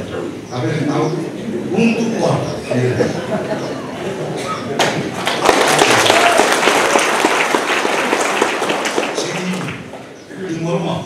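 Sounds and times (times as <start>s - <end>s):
audience applauding: 4.8s - 10.2s.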